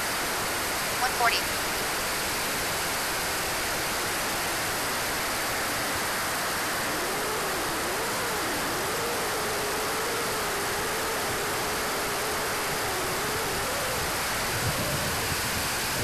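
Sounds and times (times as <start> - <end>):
jet turbine and airflow rushing: 1.6 - 16.0
faint wavering tone: 3.3 - 16.0.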